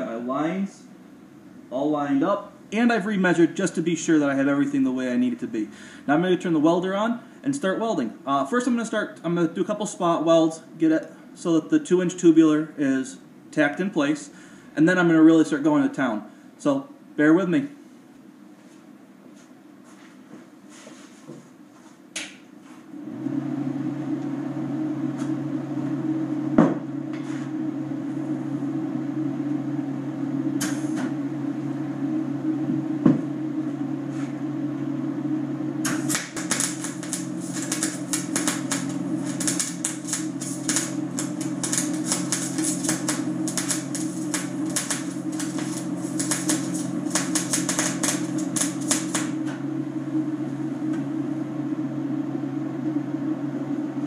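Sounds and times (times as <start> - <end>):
welder humming: 23.0 - 52.2
arc welder crackling: 30.5 - 31.2, 35.8 - 50.3.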